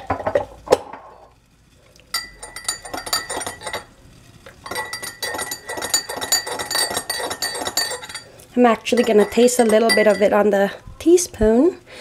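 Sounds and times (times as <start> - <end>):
teaspoon clinking glass mug: 2.2 - 3.9, 4.6 - 10.4.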